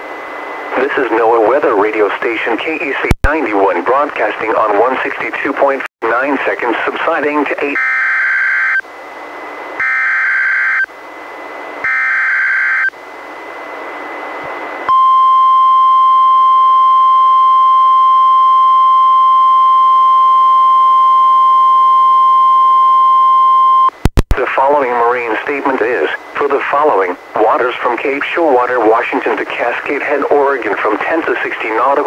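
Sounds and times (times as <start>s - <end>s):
radio hiss: 0.6s - 7.8s, 24.1s - 32.0s.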